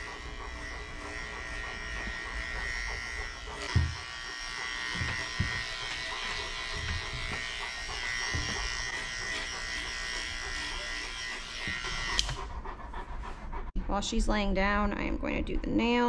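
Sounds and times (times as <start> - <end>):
electric clippers buzzing: 0.0 - 12.4.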